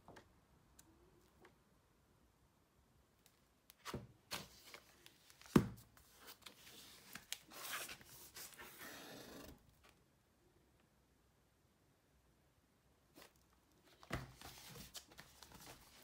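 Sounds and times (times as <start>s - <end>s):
book paper and cover rustling: 3.8s - 10.0s, 13.2s - 16.0s
book rubbing and sliding: 6.0s - 9.6s, 14.1s - 16.0s.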